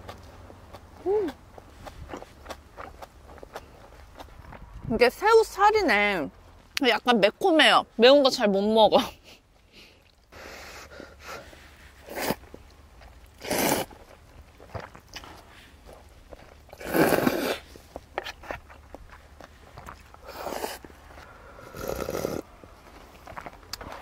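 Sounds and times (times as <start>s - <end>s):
person chewing: 0.0s - 4.8s, 9.8s - 22.5s.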